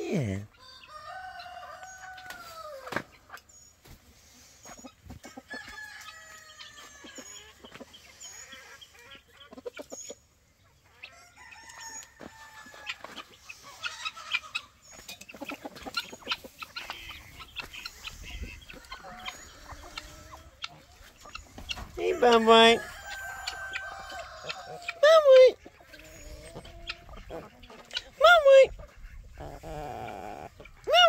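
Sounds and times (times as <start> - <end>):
hens clucking: 0.1 - 31.0
roosters crowing: 0.5 - 3.3, 5.2 - 7.8, 10.9 - 14.8, 16.7 - 27.6.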